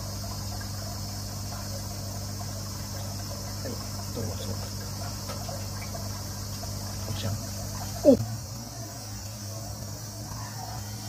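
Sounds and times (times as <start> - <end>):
water hissing: 0.0 - 8.2
aquarium pump humming: 0.0 - 11.0.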